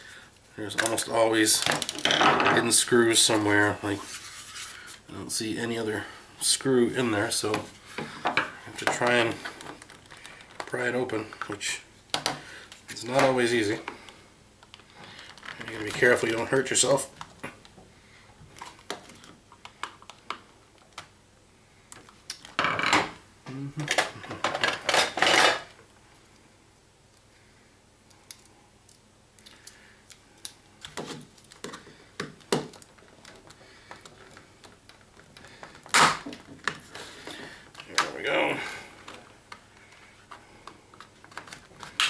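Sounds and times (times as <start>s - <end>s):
plastic cracking: 0.7s - 2.4s, 8.8s - 12.4s, 28.1s - 38.3s, 38.9s - 42.0s.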